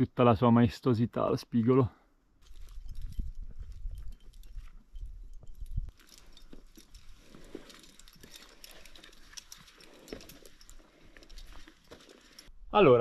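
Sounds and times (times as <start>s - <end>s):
footsteps on loose stones: 2.4s - 12.5s.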